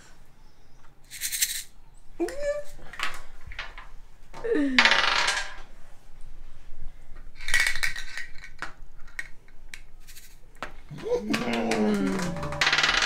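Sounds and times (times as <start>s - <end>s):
game cube rattling: 11.3s - 13.0s.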